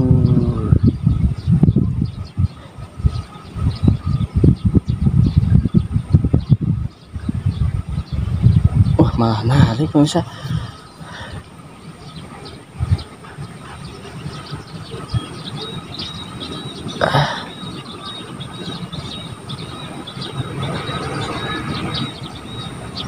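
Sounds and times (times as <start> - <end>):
low rumble: 0.0 - 11.5.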